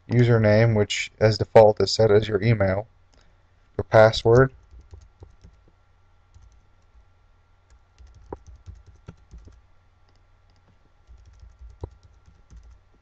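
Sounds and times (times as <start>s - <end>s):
keyboard typing: 4.4s - 5.7s, 6.3s - 7.0s, 7.7s - 13.0s.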